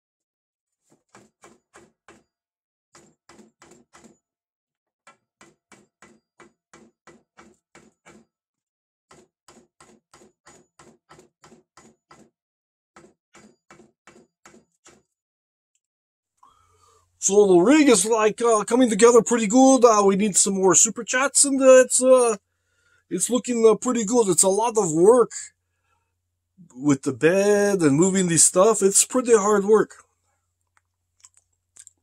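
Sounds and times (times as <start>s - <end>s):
knocking on wooden board: 5.1s - 8.3s.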